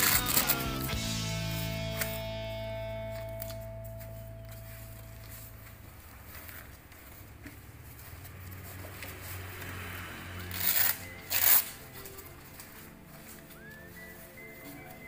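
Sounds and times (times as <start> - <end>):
fabric rustling: 3.0 - 15.0
hook-and-loop strap ripping: 10.5 - 14.0.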